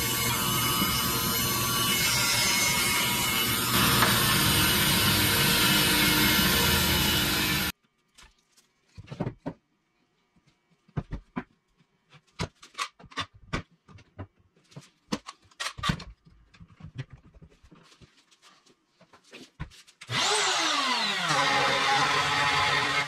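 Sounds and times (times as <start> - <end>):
router whining: 0.0 - 7.7, 20.1 - 23.0.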